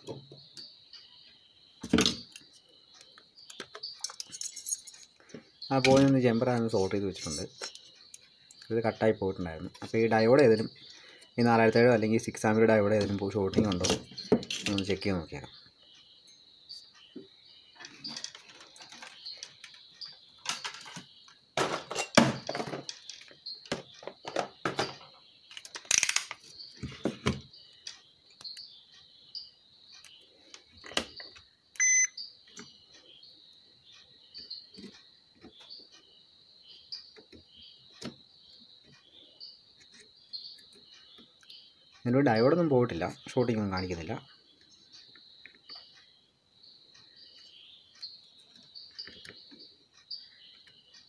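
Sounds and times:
crickets chirping: 0.0 - 51.0
multimeter probes clicking and knocking: 1.8 - 8.8, 12.9 - 15.0, 17.2 - 28.7, 30.0 - 32.8, 36.9 - 38.2
short electronic beep: 31.8 - 32.2.

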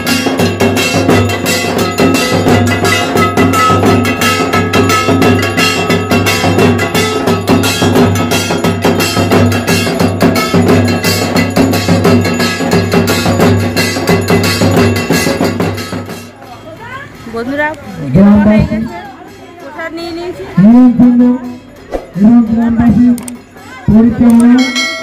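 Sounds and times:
metal gong struck rhythmically: 0.0 - 16.3.

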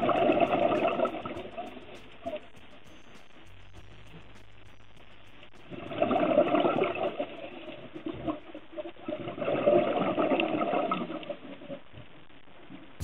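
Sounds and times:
underwater exhaled bubbles rushing: 5.9 - 11.8.

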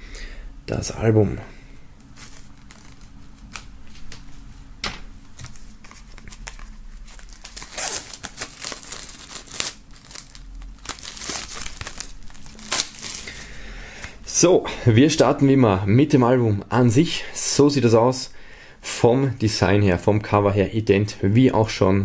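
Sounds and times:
plastic shrink-wrap crinkling: 2.2 - 4.3, 5.4 - 13.6.

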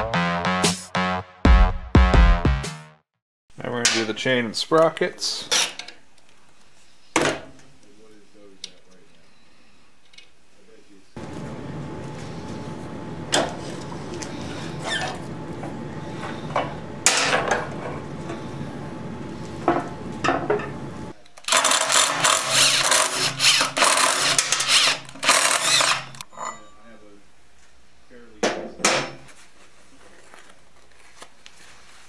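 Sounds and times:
cordless power tool running: 21.5 - 26.2.

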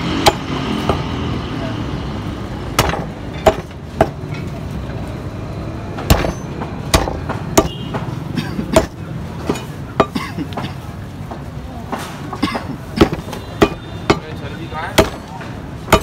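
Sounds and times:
cleaver chopping on wooden block: 2.8 - 4.2, 6.1 - 8.1, 12.6 - 15.3.

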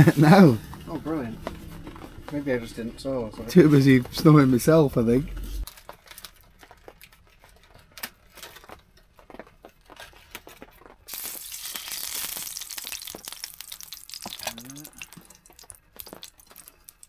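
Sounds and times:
plastic packet crinkling: 5.6 - 9.0, 9.9 - 17.0
bacon sizzling in frying pan: 11.1 - 17.0.

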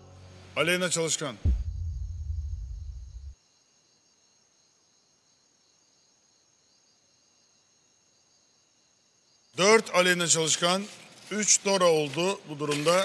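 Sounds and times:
night crickets chirping: 0.0 - 13.0
low drone: 1.4 - 3.4.

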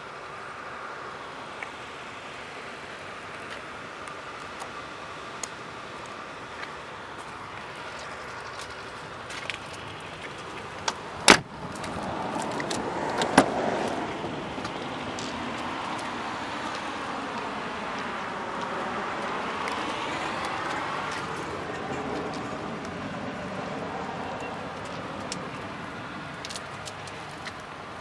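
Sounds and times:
car door shutting thud: 11.2 - 11.5.

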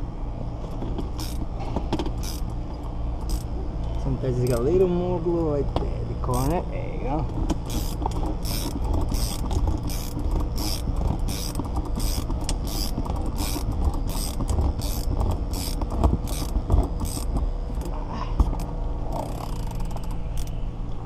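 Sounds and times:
winch rumbling: 0.0 - 21.0.

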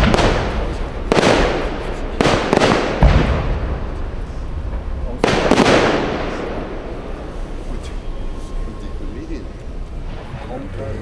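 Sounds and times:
firework shells bursting: 0.0 - 8.1.

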